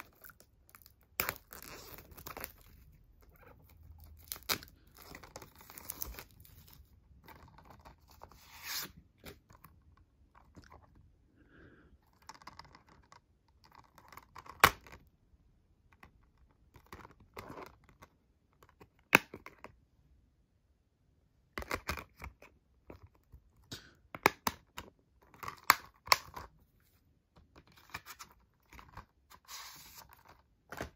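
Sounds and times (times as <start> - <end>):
plastic wrap crinkling and tearing: 0.0 - 6.9.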